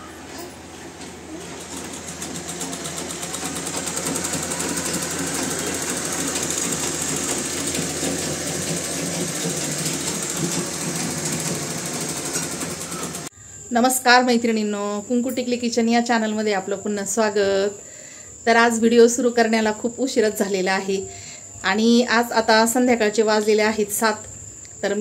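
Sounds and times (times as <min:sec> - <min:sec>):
sewing machine clattering: 0:00.3 - 0:13.3.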